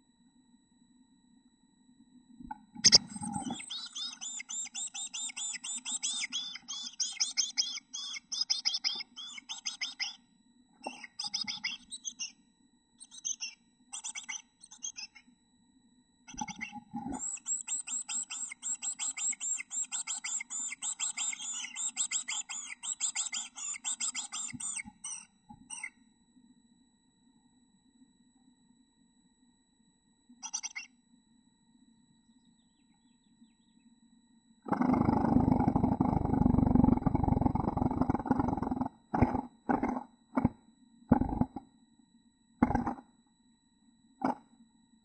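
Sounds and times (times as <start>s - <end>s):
nestlings chirping: 2.8s - 10.2s, 10.8s - 12.4s, 13.0s - 15.2s, 16.3s - 25.9s, 30.4s - 30.9s.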